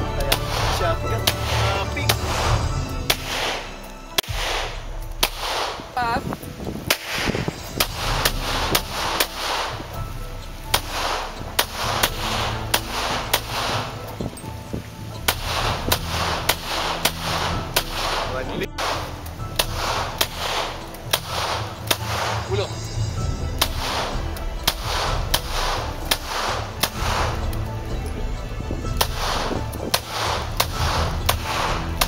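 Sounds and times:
pistol shots with echo: 0:00.3 - 0:05.9, 0:06.9 - 0:09.8, 0:10.7 - 0:13.9, 0:15.3 - 0:22.5, 0:23.6 - 0:27.4, 0:29.0 - 0:32.0.

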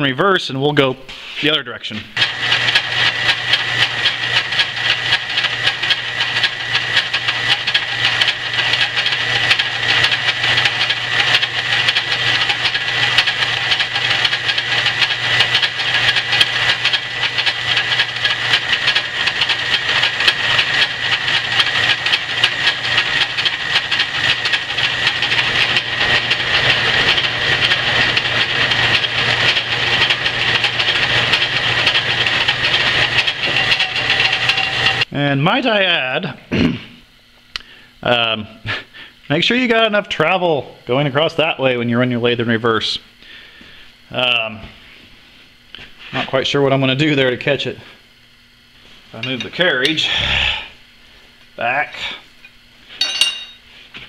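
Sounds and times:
lathe drive hum: 0:00.6 - 0:54.0
lathe tool cutting metal hiss: 0:02.2 - 0:35.0.

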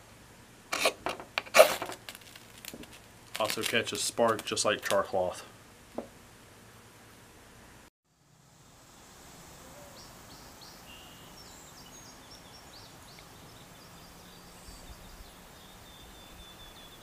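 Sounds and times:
background hiss: 0:00.0 - 0:17.0
bird trill: 0:09.8 - 0:17.0.

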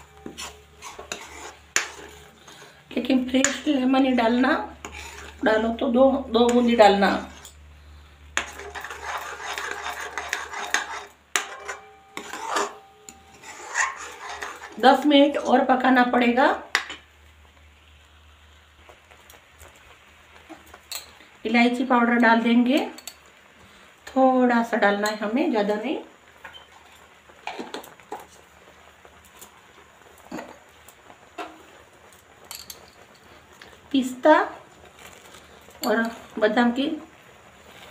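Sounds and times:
metal spoon scraping metal pan: 0:00.0 - 0:07.6, 0:08.4 - 0:15.6
milk bubbling in a pan: 0:00.0 - 0:37.9.

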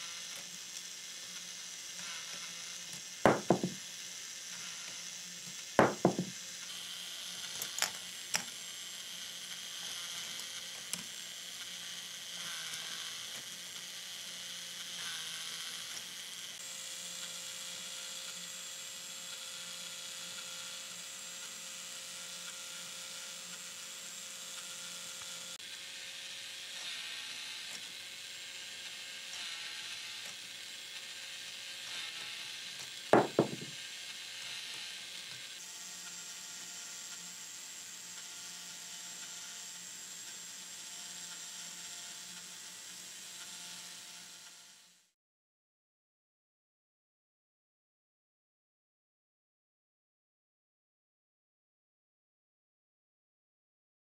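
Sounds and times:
motor whirring gears grinding: 0:00.0 - 0:16.6, 0:24.4 - 0:35.6
plastic balls knocking: 0:03.3 - 0:03.8, 0:05.8 - 0:06.3, 0:33.2 - 0:33.8.

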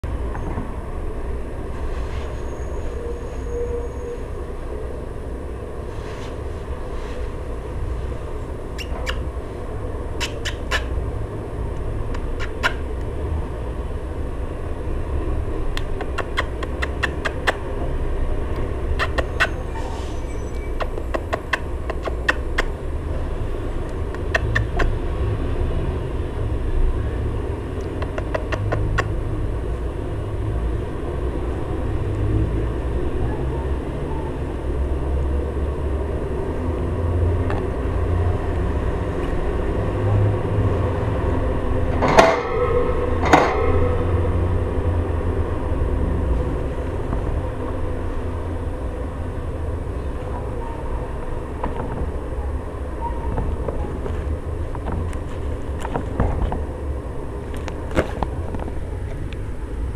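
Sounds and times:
steady low rumble: 0:34.4 - 0:59.9.

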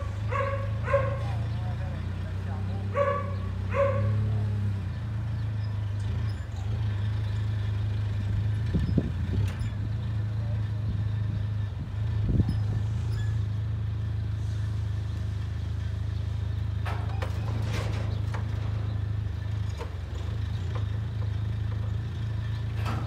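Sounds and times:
forklift engine running: 0:00.0 - 0:23.0
knocks and clanks: 0:16.7 - 0:23.0.

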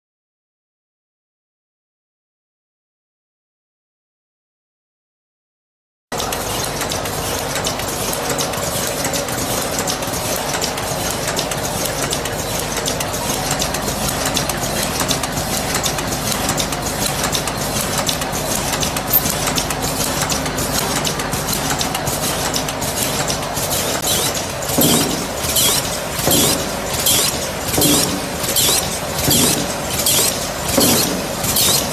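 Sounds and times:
rapid mechanical clicks: 0:06.2 - 0:31.9
machine humming: 0:17.6 - 0:31.9.

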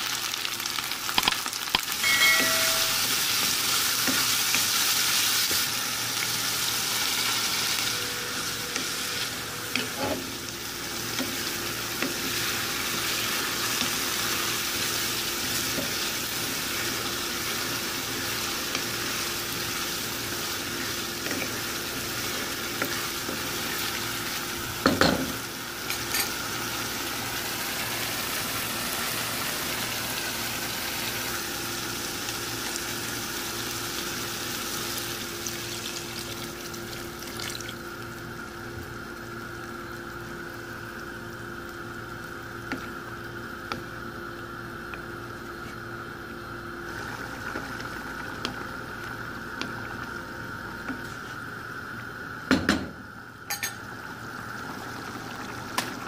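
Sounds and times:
sauce sizzling in a frying pan: 0:00.0 - 0:52.3, 0:53.6 - 0:56.0.

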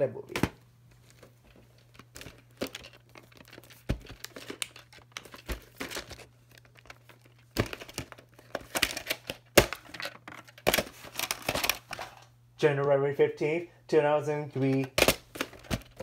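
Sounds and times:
plastic cases crinkling and clicking: 0:00.3 - 0:12.9, 0:14.6 - 0:16.0.

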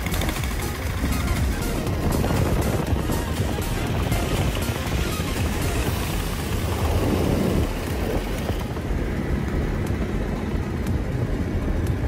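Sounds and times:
motorcycle engines running: 0:00.0 - 0:12.0
road noise: 0:00.0 - 0:12.0.

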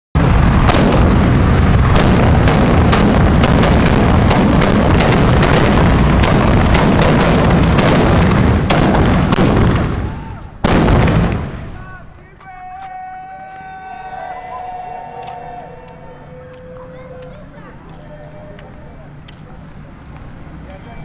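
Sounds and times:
fireworks bangs and crackling: 0:00.2 - 0:12.7.

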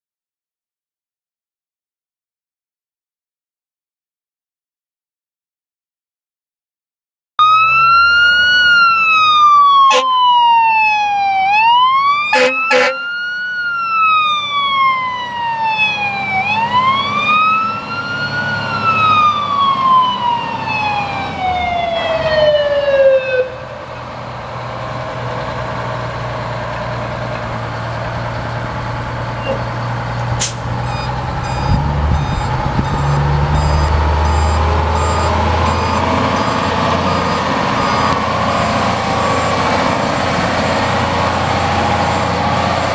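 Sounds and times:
fire truck siren wailing: 0:07.4 - 0:42.9
diesel engine running: 0:23.5 - 0:42.9.

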